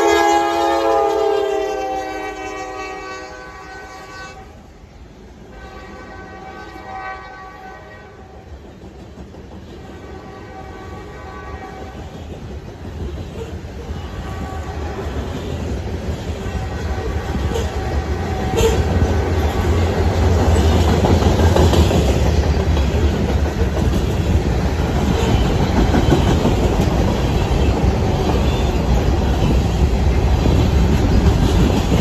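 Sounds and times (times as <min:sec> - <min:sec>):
locomotive horn: 0:00.0 - 0:04.7, 0:05.5 - 0:08.3, 0:09.9 - 0:12.0, 0:13.9 - 0:15.3, 0:16.4 - 0:19.7
train cars rumbling and clattering: 0:00.0 - 0:32.0.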